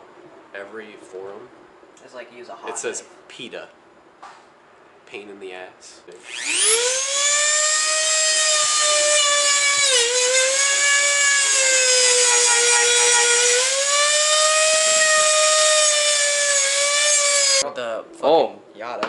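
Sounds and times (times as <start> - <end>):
rotary tool whining while cutting: 6.2 - 17.6.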